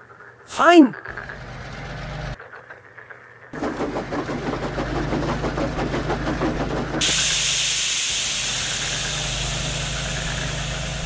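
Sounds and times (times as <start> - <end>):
steam hissing: 3.6 - 11.0
steam locomotive chuffing: 3.6 - 11.0.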